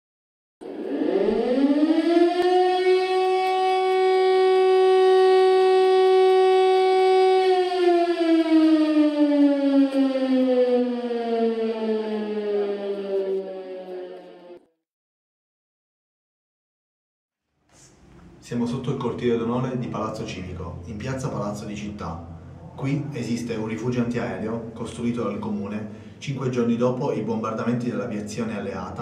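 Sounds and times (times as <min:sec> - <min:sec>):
air-raid siren winding: 0:00.6 - 0:14.7.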